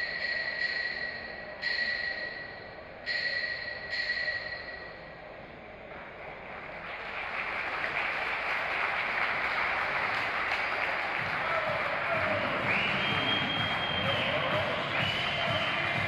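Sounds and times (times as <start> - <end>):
steady high tones: 0.0 - 5.4
audience applause: 6.4 - 16.0.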